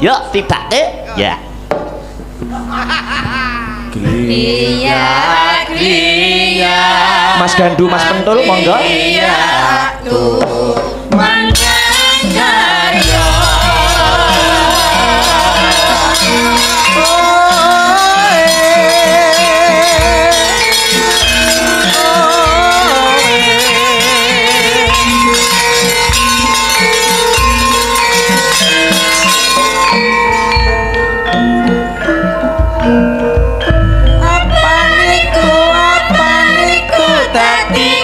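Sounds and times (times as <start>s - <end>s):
metallophones: 1.4s - 38.0s
drum beat: 1.5s - 4.5s, 8.5s - 38.0s
woman singing with vibrato: 4.0s - 26.4s, 34.0s - 38.0s
gamelan ensemble: 10.8s - 38.0s.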